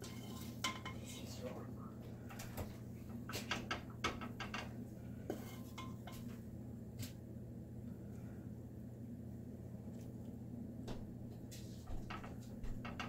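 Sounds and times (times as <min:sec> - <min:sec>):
steady low hum: 0:00.0 - 0:13.0
wooden spoon knocking metal skillet: 0:03.4 - 0:06.3.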